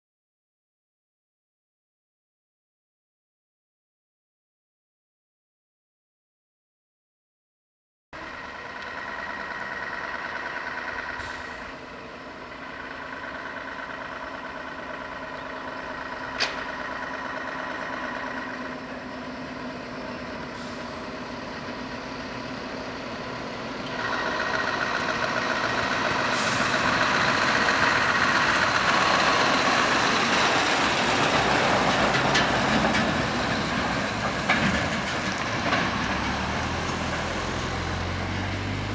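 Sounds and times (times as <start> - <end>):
truck diesel engine running: 8.2 - 38.9.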